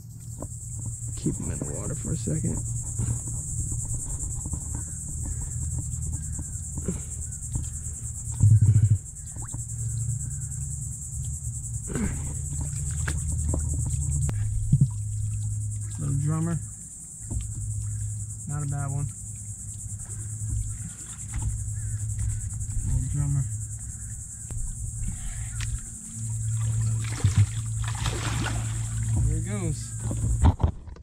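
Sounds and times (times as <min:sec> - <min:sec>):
insect drone: 0:00.0 - 0:31.0
low background hum: 0:00.0 - 0:31.0.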